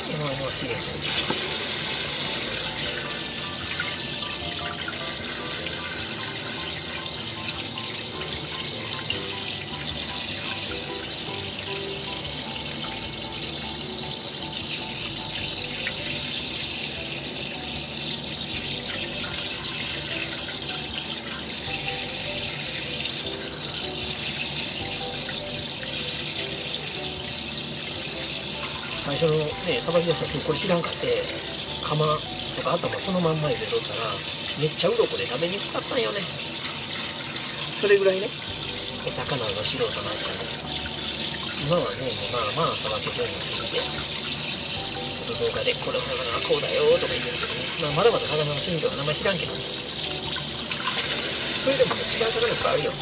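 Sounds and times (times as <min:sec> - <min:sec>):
hands rinsing under water: 0:00.0 - 0:09.9, 0:28.1 - 0:53.0
faucet running into sink: 0:00.0 - 0:53.0.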